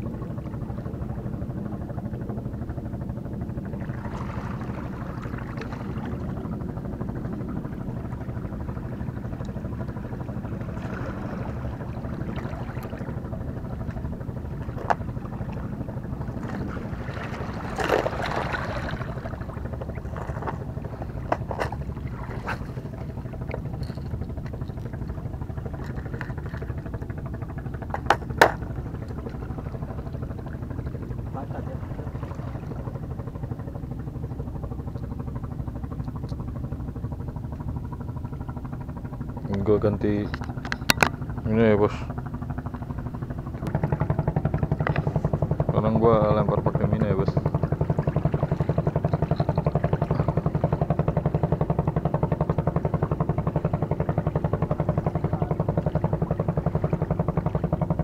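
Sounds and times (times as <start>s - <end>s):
low engine drone: 0.0s - 58.0s
plastic clicks and knocks: 27.9s - 28.6s, 40.3s - 41.2s.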